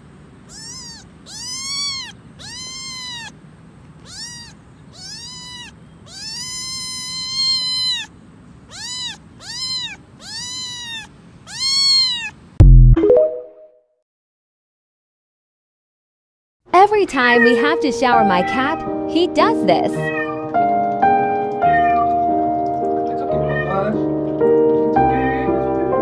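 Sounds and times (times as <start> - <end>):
kitten meowing: 0.5 - 3.4, 4.0 - 8.1, 8.7 - 12.4, 19.9 - 20.8, 21.4 - 22.3, 23.3 - 24.0, 25.0 - 25.6.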